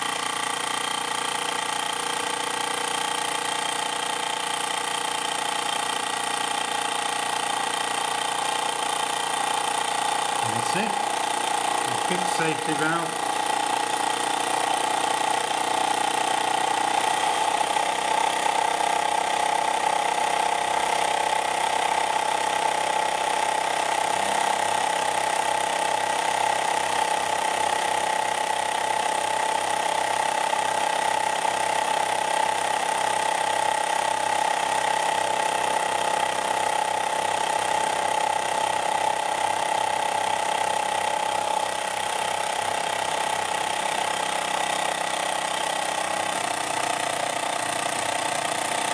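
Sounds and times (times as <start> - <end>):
fast even engine beat: 10.3 - 13.6.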